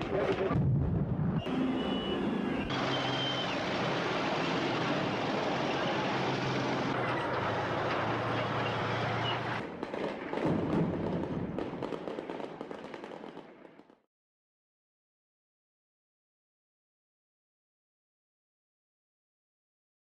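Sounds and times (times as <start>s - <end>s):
street noise rumble: 0.0s - 13.3s
sharp bangs and crackles: 0.0s - 14.0s.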